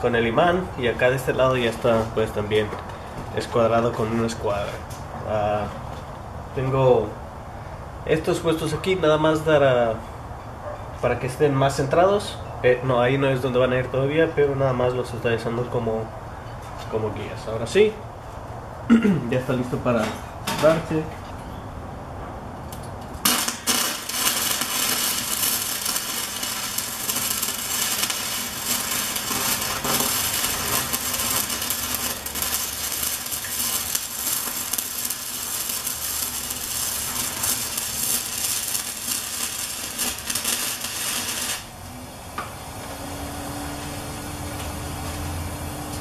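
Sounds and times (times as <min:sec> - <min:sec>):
welding arc crackling sizzle: 0:22.7 - 0:46.0.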